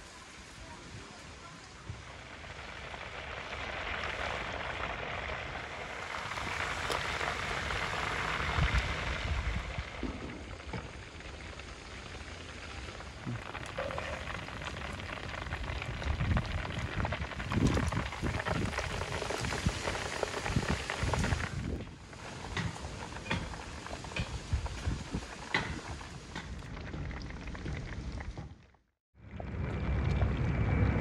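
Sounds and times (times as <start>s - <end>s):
chicken deep-frying sizzle: 0.0s - 28.6s.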